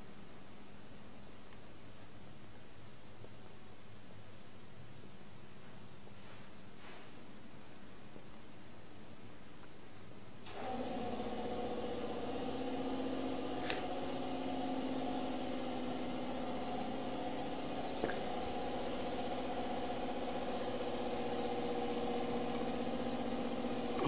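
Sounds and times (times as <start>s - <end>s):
conveyor motor hum: 10.4s - 24.0s.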